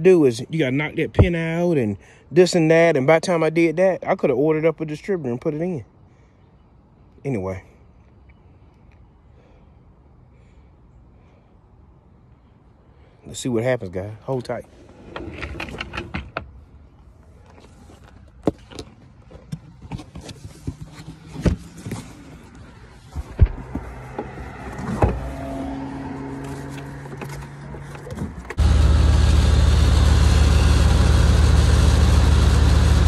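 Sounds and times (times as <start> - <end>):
truck engine idling: 28.6 - 33.0.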